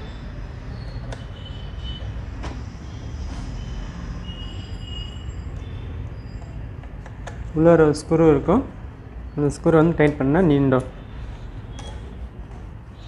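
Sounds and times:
screw squeaking and scraping: 4.3s - 7.1s.

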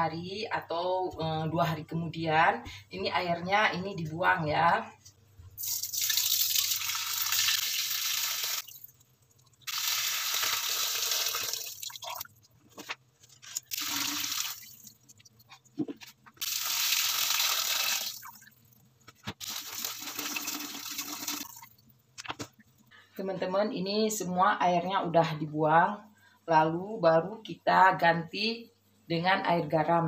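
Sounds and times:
water pouring into metal strainer: 5.6s - 8.9s.

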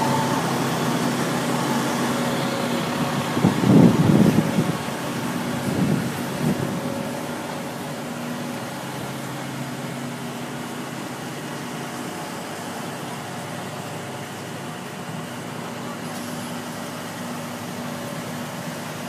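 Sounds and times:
fire truck engines idling: 0.0s - 19.0s.

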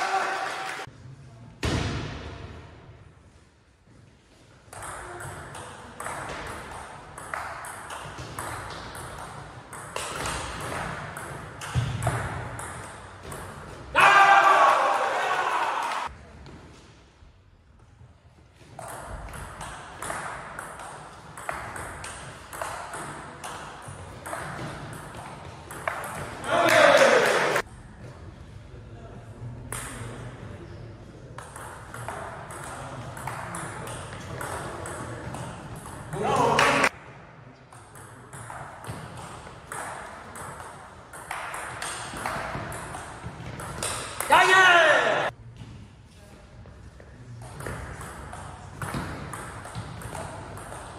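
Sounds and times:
ping pong ball bouncing on table: 4.8s - 13.5s, 18.8s - 26.5s, 31.4s - 36.1s, 37.7s - 44.3s, 47.4s - 50.9s
ping pong ball clicking off bats: 18.8s - 26.4s, 31.4s - 36.1s, 37.8s - 44.3s, 47.4s - 50.9s.

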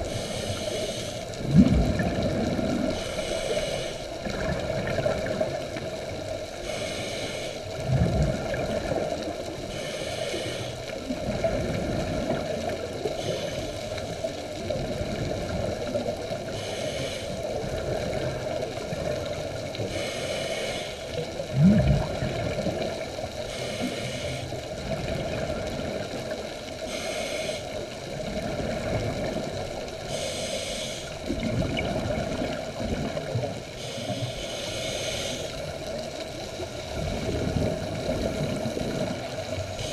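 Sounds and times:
regulator inhalation hiss: 0.0s - 1.4s, 3.0s - 4.2s, 6.6s - 7.7s, 9.7s - 10.8s, 13.2s - 14.0s, 16.5s - 17.4s, 19.8s - 21.2s, 23.5s - 24.6s, 26.8s - 27.8s, 30.1s - 31.2s, 33.8s - 35.7s
gurgling exhaled bubbles: 0.0s - 3.1s, 4.1s - 6.8s, 7.7s - 9.8s, 11.0s - 16.5s, 17.4s - 20.1s, 21.1s - 39.9s.

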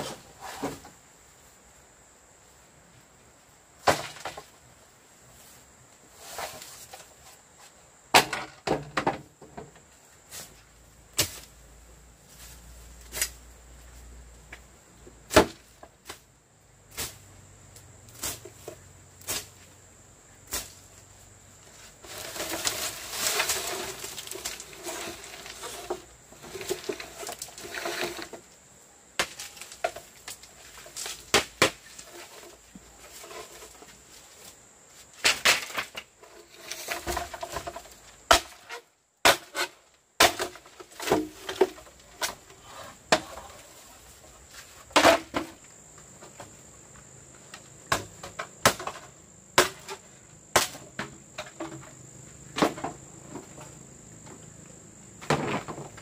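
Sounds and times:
leafy rustling: 9.9s - 14.1s, 18.0s - 45.9s.

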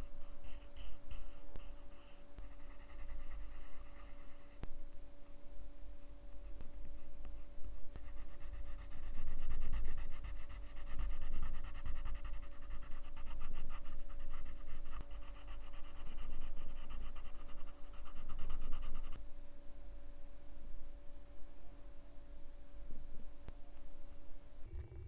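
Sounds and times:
pencil shading on paper: 0.2s - 4.6s, 8.0s - 19.2s.

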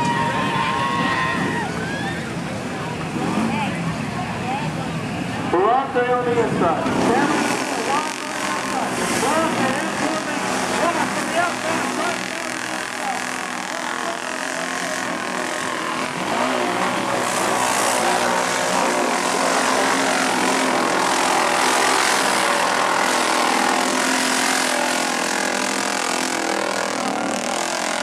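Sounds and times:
atv engines revving: 0.0s - 28.0s.

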